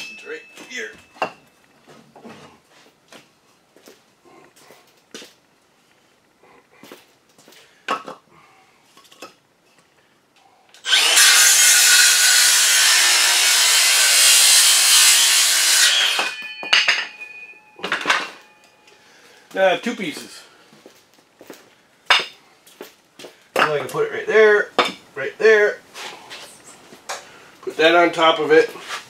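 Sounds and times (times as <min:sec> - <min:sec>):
power saw cutting wood: 0:10.8 - 0:17.0.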